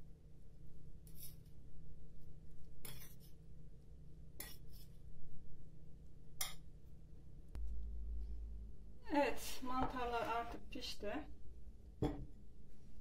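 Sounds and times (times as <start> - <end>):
fork stirring in a ceramic bowl: 1.0 - 1.6, 2.7 - 3.4, 4.4 - 5.0.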